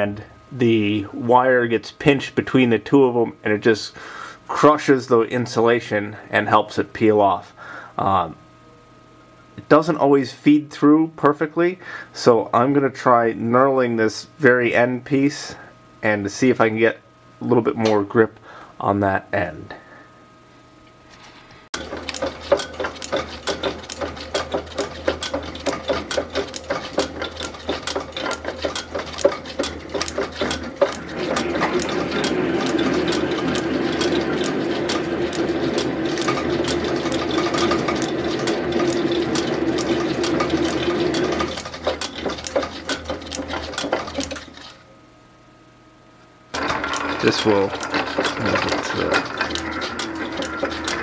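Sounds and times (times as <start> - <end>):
knurling tool grinding steel: 21.8 - 44.8, 46.6 - 51.0
lathe motor hum with rapid ticks: 21.8 - 44.9, 46.5 - 51.0.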